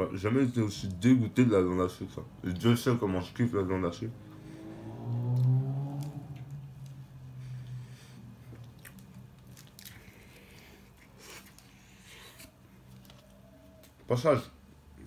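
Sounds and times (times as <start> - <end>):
person chewing food: 5.2 - 14.0.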